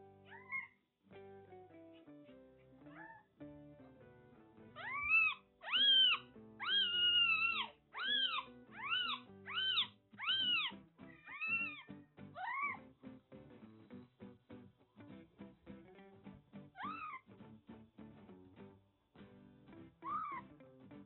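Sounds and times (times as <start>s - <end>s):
kitten mewing: 0.3s - 0.7s, 4.8s - 12.8s, 16.8s - 17.3s, 20.0s - 20.5s.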